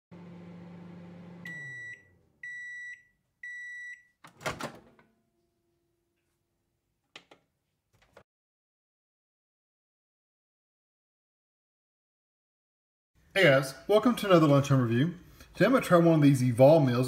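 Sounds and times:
microwave oven humming: 0:00.1 - 0:02.7
microwave beeps: 0:01.1 - 0:04.2
microwave door popping open: 0:04.3 - 0:05.0.

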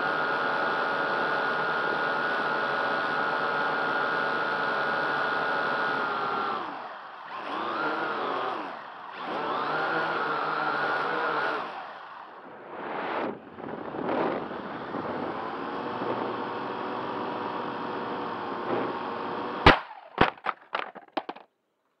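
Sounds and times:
drone propellers whining: 0:03.1 - 0:19.6.

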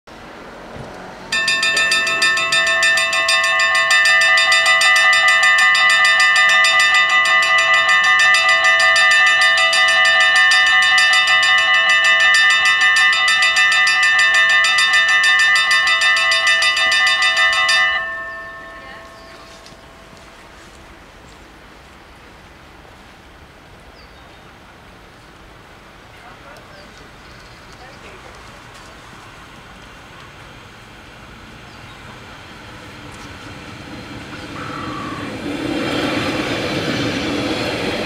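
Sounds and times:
level crossing bells ringing: 0:01.3 - 0:21.0.

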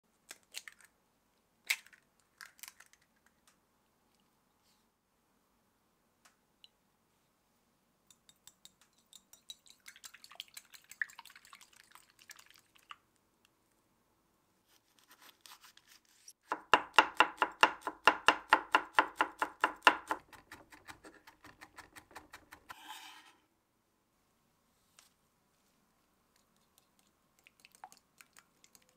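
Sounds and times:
whisk clicking against ceramic bowl: 0:08.1 - 0:11.2, 0:19.0 - 0:22.7
knife chopping on cutting board: 0:16.4 - 0:22.9
knife scraping across board: 0:22.7 - 0:23.4.

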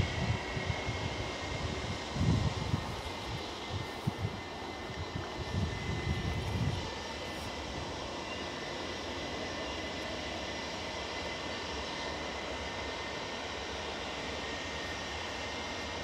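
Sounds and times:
low rumbling buffets: 0:00.0 - 0:11.9
jet engines roaring: 0:00.0 - 0:16.0.

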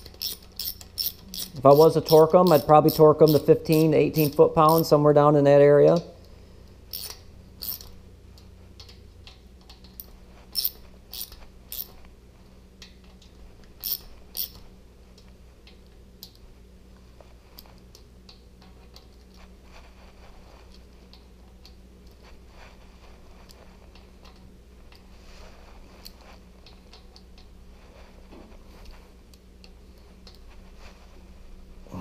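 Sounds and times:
metal clicks of nuts and tools: 0:00.0 - 0:04.8, 0:06.9 - 0:07.9.

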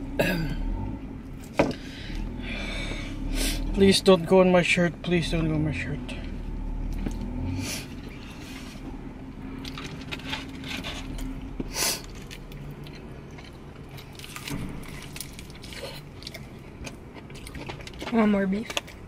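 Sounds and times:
people chewing crispy food: 0:06.9 - 0:19.0.

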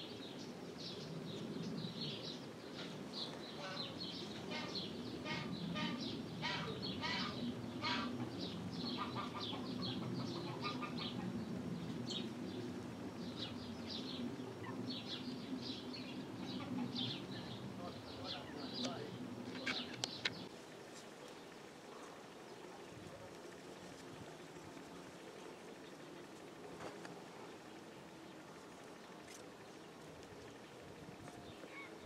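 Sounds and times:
lower bird calls: 0:00.0 - 0:20.5.

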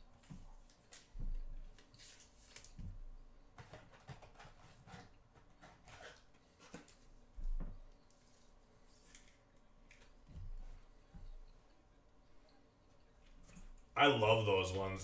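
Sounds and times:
cards rustling and scraping: 0:01.7 - 0:02.9, 0:03.6 - 0:07.1, 0:08.1 - 0:10.2.

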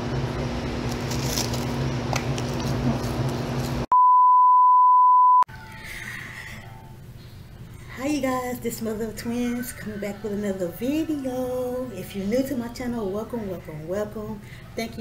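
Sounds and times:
test tone beep: 0:03.9 - 0:05.5
low background hum: 0:05.5 - 0:15.0.

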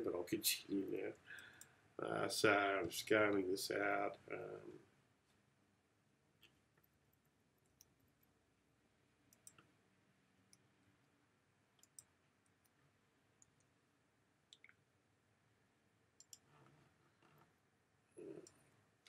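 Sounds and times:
computer mouse and keyboard clicks: 0:16.2 - 0:17.5.

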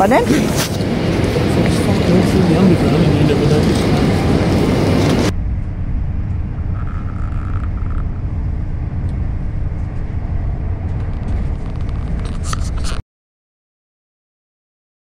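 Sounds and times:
busy station noise: 0:00.0 - 0:05.3
constant hum: 0:00.0 - 0:13.0
train rumble inside carriage: 0:00.0 - 0:13.0.

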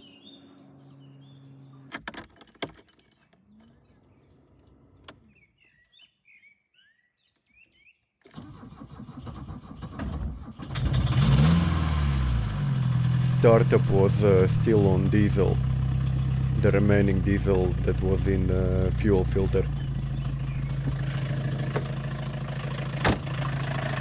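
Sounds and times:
faint bird chirps: 0:03.4 - 0:08.3
diesel engine starting and idling: 0:08.3 - 0:24.0.

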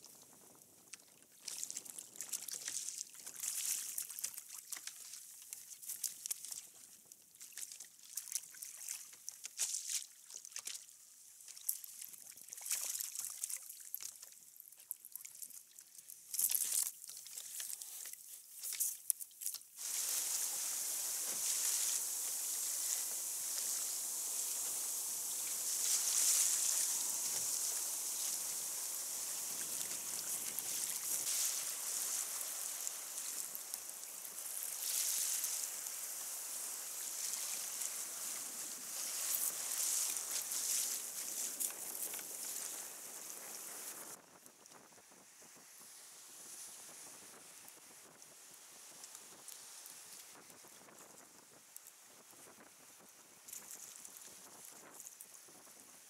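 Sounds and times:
water rushing past hull: 0:19.8 - 0:44.2
water splashing on kayak hull: 0:19.8 - 0:44.2.

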